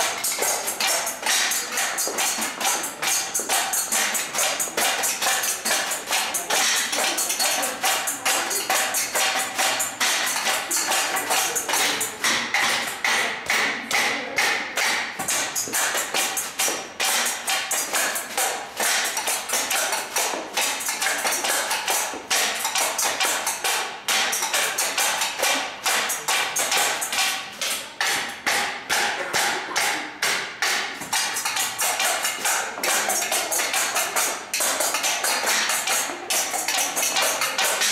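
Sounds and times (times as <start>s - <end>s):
percussion on metal dish covers: 0.0s - 37.9s.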